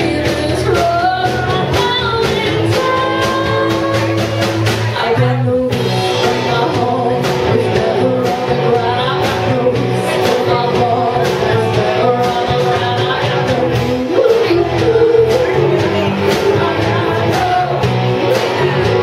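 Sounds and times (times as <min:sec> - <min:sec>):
live rock band playing: 0:00.0 - 0:19.0
woman singing: 0:00.0 - 0:19.0.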